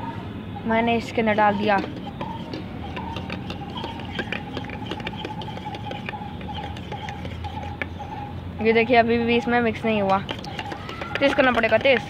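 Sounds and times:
metal spoon clinking in steel tumbler: 10.0s - 12.0s.

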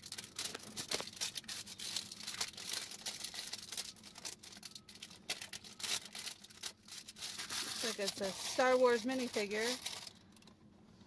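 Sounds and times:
plastic wrapping crinkling: 0.0s - 10.4s.

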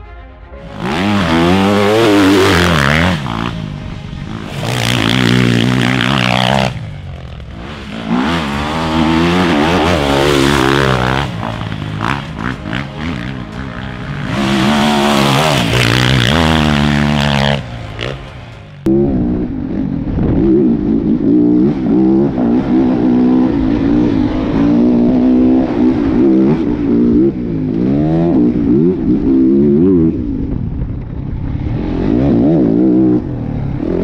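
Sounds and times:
motocross bike engine revving: 0.6s - 30.2s, 31.5s - 34.0s.

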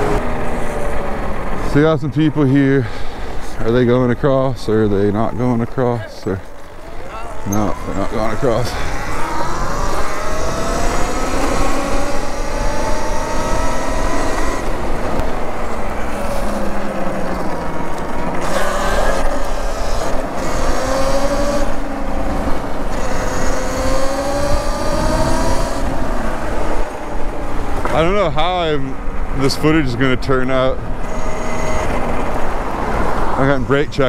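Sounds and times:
higher-pitched whine: 4.9s - 21.9s
electric motor whine: 7.3s - 15.4s, 16.1s - 21.8s, 22.9s - 26.6s
wind rumble on microphone: 19.4s - 29.8s.

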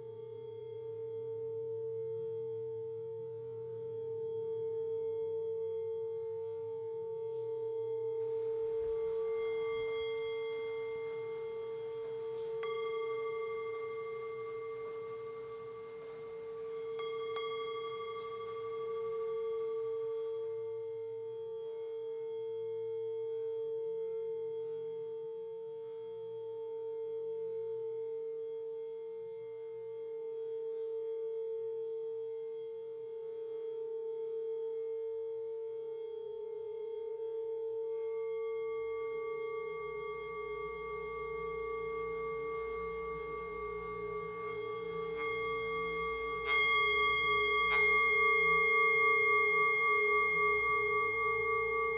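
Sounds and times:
singing bowl drone: 0.0s - 51.9s
singing bowl strikes ringing: 8.2s - 22.2s, 38.0s - 51.9s.

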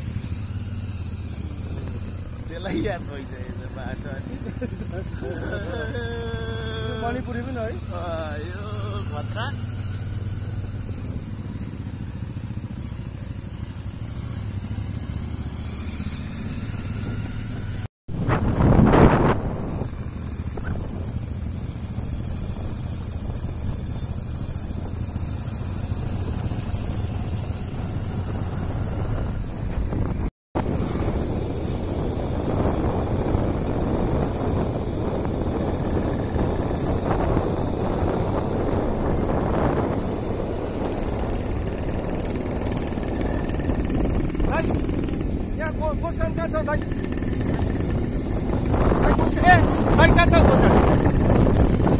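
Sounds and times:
vehicle engine idling: 0.0s - 17.9s, 19.0s - 51.9s
wind rush on microphone: 18.1s - 51.9s.

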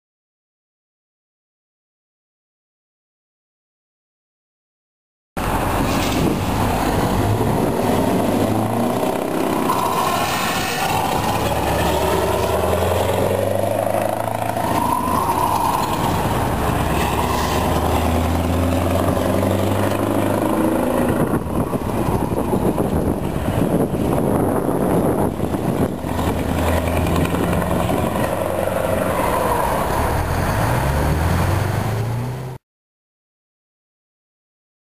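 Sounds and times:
diesel truck engine pulling away: 5.4s - 32.6s.

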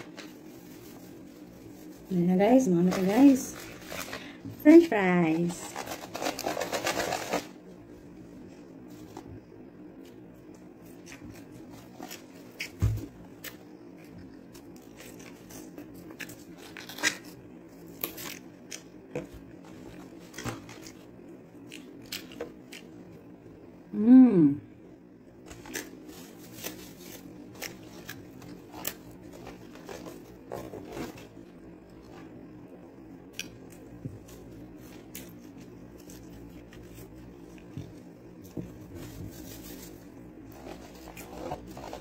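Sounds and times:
paper packaging rustling: 0.0s - 7.6s, 25.5s - 31.4s, 38.8s - 42.0s.

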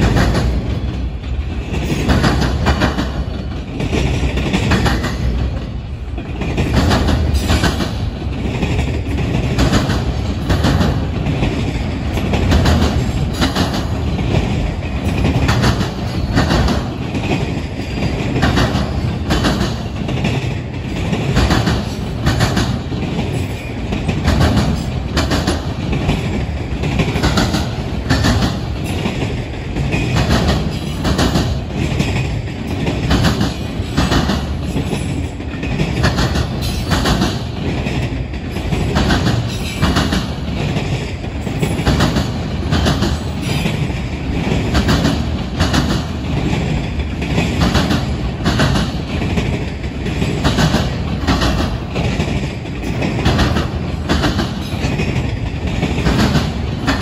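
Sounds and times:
train wheels rumbling on rail: 0.0s - 57.0s
wheels clacking over rail joints: 0.0s - 57.0s.

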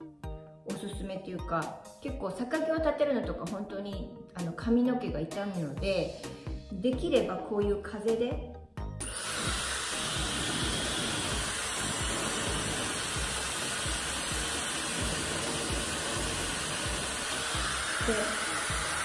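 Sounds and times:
hair dryer blowing air: 9.0s - 19.0s.

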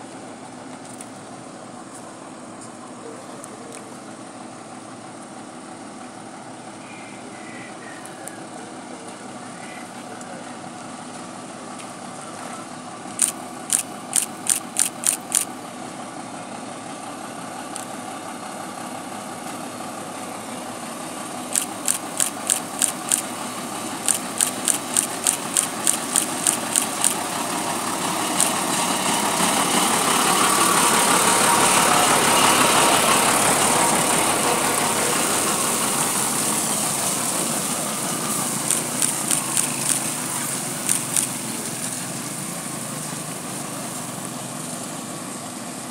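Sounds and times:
truck diesel engine running: 0.0s - 45.9s
water spraying onto dirt: 13.1s - 15.6s, 21.4s - 45.0s
short sharp ticks: 13.2s - 15.5s, 21.5s - 23.3s, 24.0s - 27.2s, 28.4s - 28.6s, 38.6s - 40.2s, 40.8s - 41.4s.

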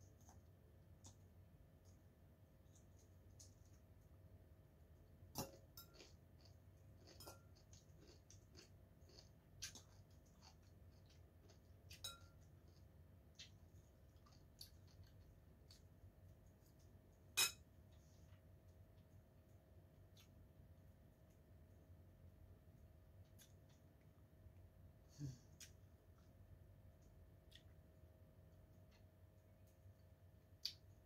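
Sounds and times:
fork clinking against bowl: 11.9s - 12.4s.

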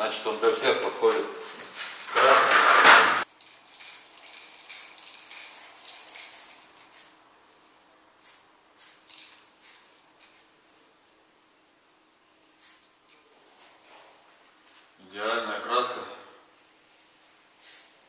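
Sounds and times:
spray can rattling: 2.2s - 7.2s, 8.2s - 10.5s, 12.6s - 13.7s
short hissing spray spurts: 3.7s - 7.2s, 8.2s - 10.5s, 12.5s - 13.9s, 17.6s - 18.0s.

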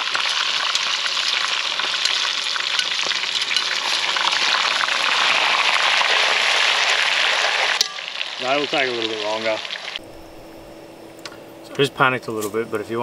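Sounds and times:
oil sizzling and popping: 0.0s - 10.0s
tongs stirring: 0.2s - 4.6s.

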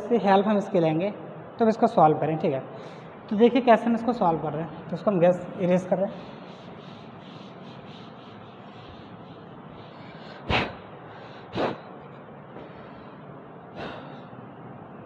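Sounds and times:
short sharp breaths: 2.8s - 3.3s, 6.1s - 14.6s
room hiss: 2.8s - 12.0s.

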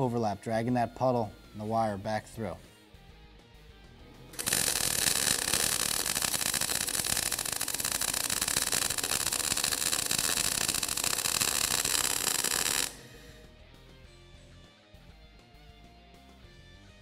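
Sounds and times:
welding arc crackling: 4.3s - 13.2s.

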